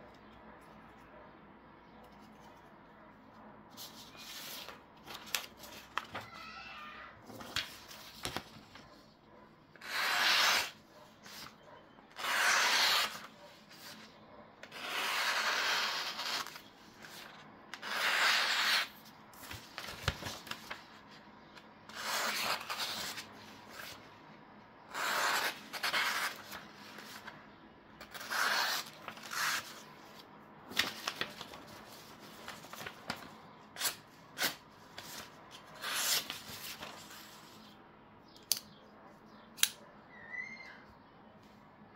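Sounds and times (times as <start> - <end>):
paper rustling: 3.7 - 6.6, 7.2 - 9.1, 19.4 - 21.1, 28.2 - 37.5
knife slicing paper: 9.8 - 11.6, 12.2 - 14.0, 14.6 - 20.8, 21.9 - 23.9, 24.9 - 27.3, 28.0 - 29.9, 33.8 - 37.3.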